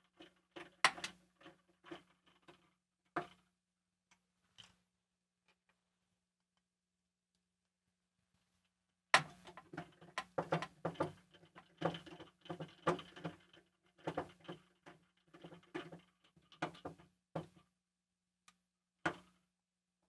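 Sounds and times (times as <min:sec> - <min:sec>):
small metallic clicks and rattles: 0:00.0 - 0:03.5, 0:09.2 - 0:17.0.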